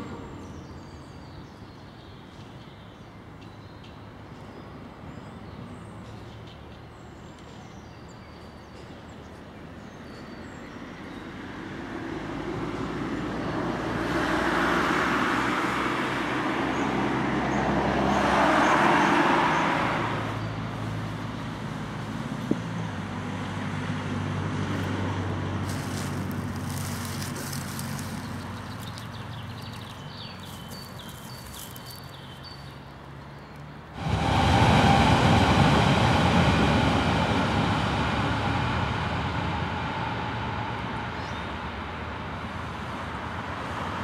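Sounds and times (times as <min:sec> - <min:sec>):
tram wheels rumbling on rails: 0:11.9 - 0:33.1, 0:33.9 - 0:44.0.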